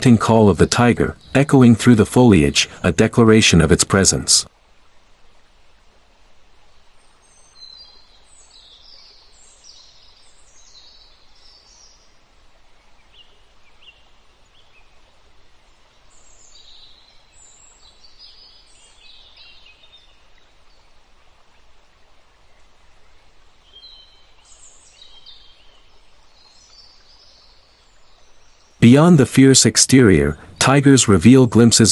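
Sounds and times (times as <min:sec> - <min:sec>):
birds chirping: 0:00.0 - 0:04.5, 0:07.0 - 0:21.0, 0:22.6 - 0:31.9
outdoor ambience hiss: 0:00.0 - 0:31.9.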